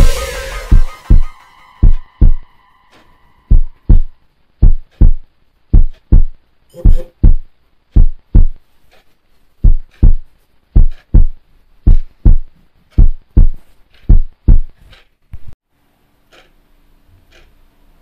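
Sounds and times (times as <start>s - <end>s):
heartbeat thumps: 0.0s - 2.5s, 3.5s - 8.7s, 9.6s - 14.8s.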